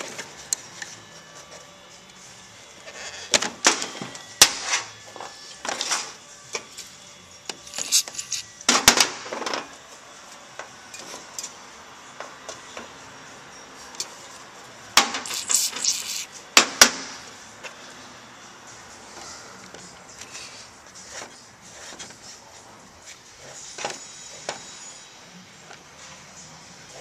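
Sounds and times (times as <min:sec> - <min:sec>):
rustling scrape: 0:07.7 - 0:08.5.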